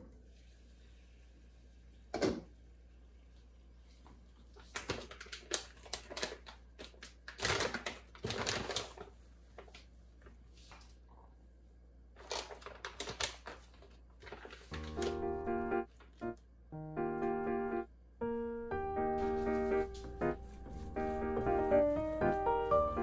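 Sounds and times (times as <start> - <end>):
plastic bag crinkling: 4.6 - 9.9, 12.2 - 16.3
piano melody: 14.7 - 23.0.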